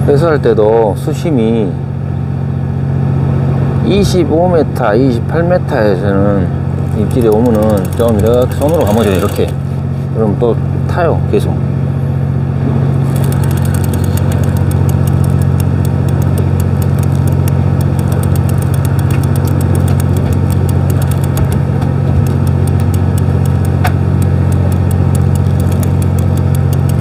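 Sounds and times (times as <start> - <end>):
boat engine idling: 6.8 - 9.7, 13.1 - 27.0
rapid light clicking: 6.8 - 9.7, 13.0 - 27.0.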